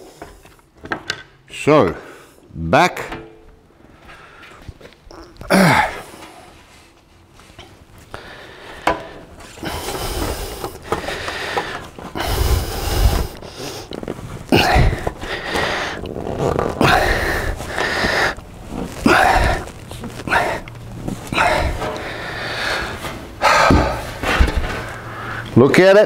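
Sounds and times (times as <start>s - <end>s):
loud breathy sound: 8.1s - 13.9s, 21.3s - 25.6s.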